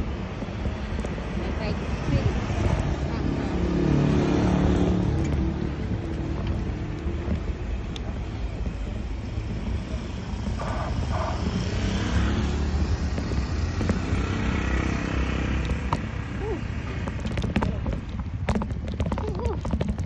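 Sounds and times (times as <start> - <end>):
wind and road noise: 0.0 - 20.0.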